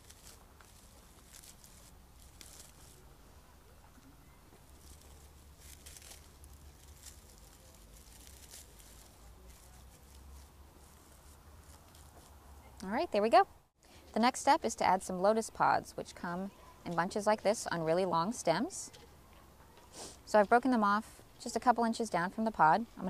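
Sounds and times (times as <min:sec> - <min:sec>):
dried straw rustling and crackling: 0:00.0 - 0:12.9.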